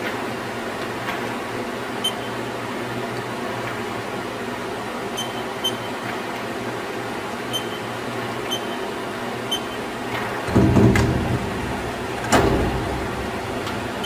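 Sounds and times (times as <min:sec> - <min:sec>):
steady hum: 0:00.0 - 0:14.0
high keypad beeps: 0:05.2 - 0:06.0, 0:07.5 - 0:07.9, 0:08.5 - 0:08.8, 0:09.5 - 0:09.8.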